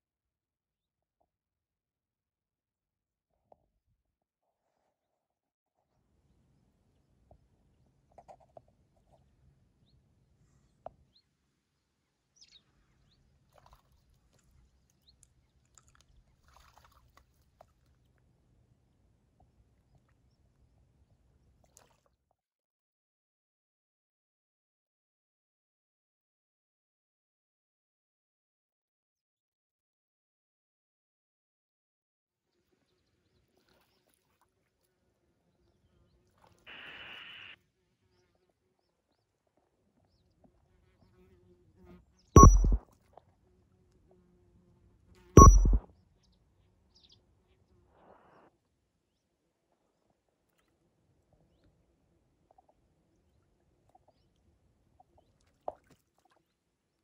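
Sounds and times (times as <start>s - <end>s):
small birds chirping: 12.4s - 16.5s, 36.8s - 42.8s, 45.4s - 47.7s
faint water splashes: 12.4s - 22.3s, 32.5s - 41.1s, 49.6s - 57.0s
bird splashing in water: 13.5s - 18.0s.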